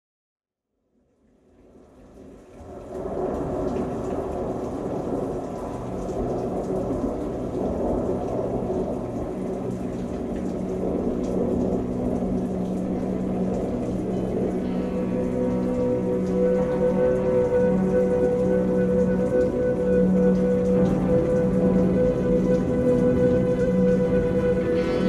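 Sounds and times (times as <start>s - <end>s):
dense steady rushing noise: 2.9s - 25.0s
low sustained drone tones: 6.6s - 25.0s.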